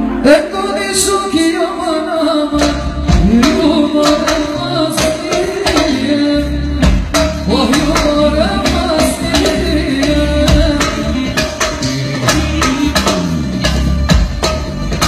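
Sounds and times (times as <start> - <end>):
woman singing into a microphone: 0.2 - 13.4
heavy low bass line: 6.3 - 15.0.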